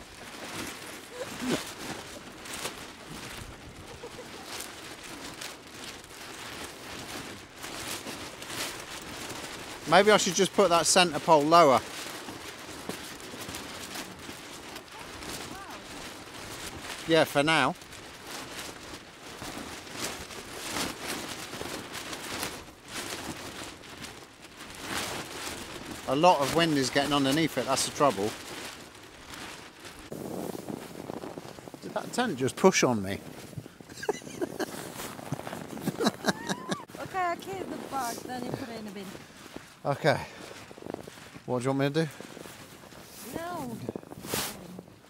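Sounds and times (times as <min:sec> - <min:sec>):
gusty wind buffeting microphone: 0:00.0 - 0:09.9, 0:28.4 - 0:45.0
tarp fabric flapping: 0:00.0 - 0:45.0.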